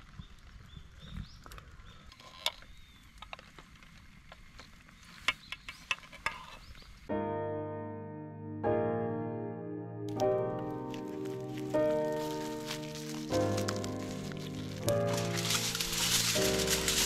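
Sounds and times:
soft music: 0:07.1 - 0:17.0.

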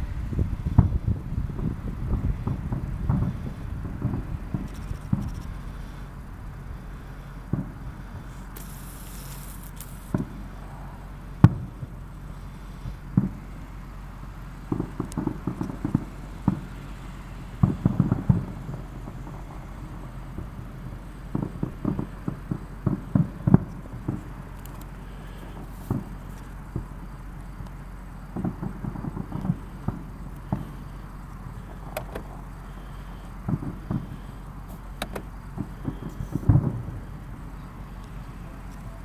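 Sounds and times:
fireworks bangs: 0:00.0 - 0:13.9, 0:14.6 - 0:39.0
rapid fireworks pops: 0:00.2 - 0:39.0.

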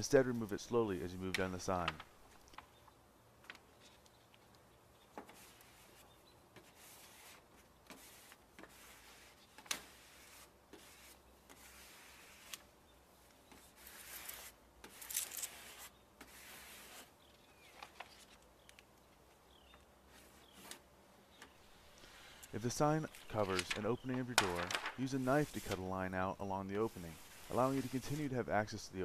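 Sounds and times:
hand rubbing vinyl sign: 0:05.3 - 0:12.6, 0:13.5 - 0:17.1, 0:21.7 - 0:29.0
paper backing being peeled: 0:13.8 - 0:17.0, 0:21.8 - 0:26.0, 0:26.7 - 0:28.4.

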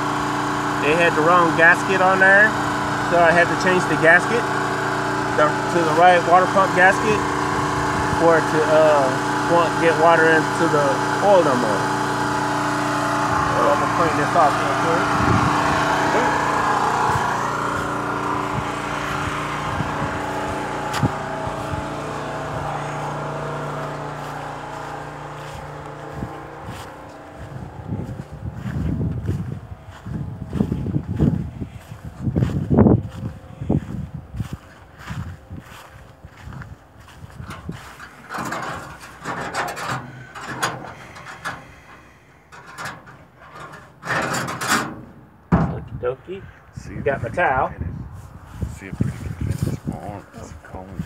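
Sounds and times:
engine running steadily: 0:00.0 - 0:51.0
rubbing and scraping: 0:37.3 - 0:45.2.

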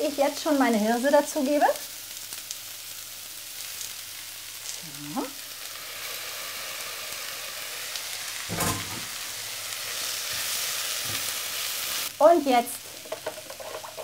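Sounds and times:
vegetables sizzling in a frying pan: 0:00.0 - 0:14.0.

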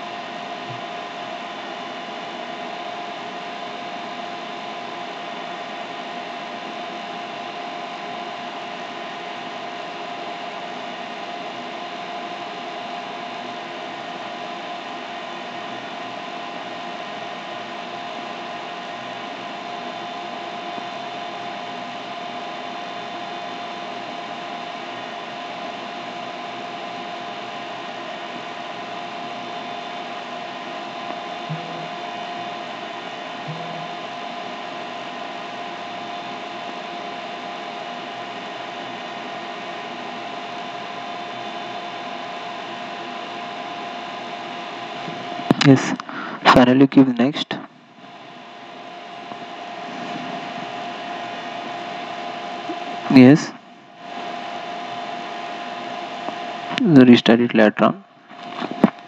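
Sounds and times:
machine hum and hiss: 0:00.0 - 0:59.0
constant whine: 0:17.0 - 0:59.0.

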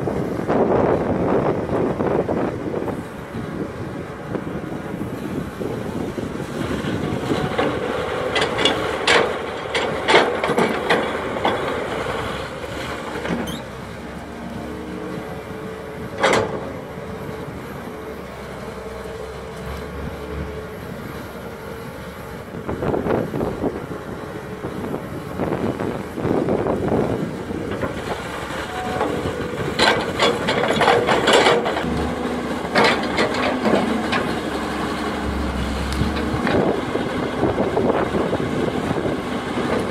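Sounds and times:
excavator diesel engine: 0:00.0 - 0:39.9
excavator bucket knocks and clanks: 0:16.1 - 0:16.8, 0:27.7 - 0:36.9.

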